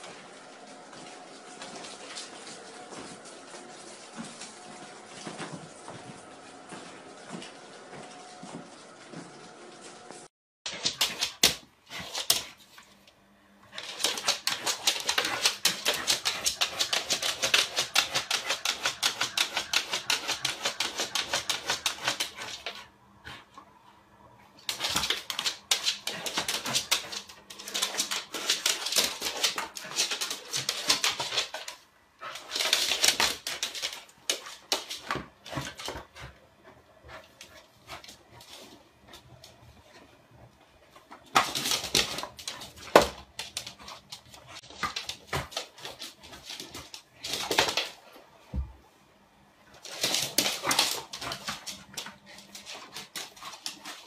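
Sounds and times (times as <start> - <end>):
mop scraping wooden floor: 24.6 - 39.9.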